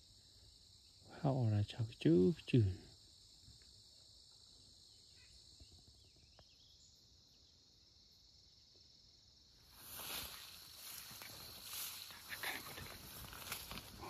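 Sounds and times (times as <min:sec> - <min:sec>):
crickets and insects chirping: 0:00.0 - 0:14.0.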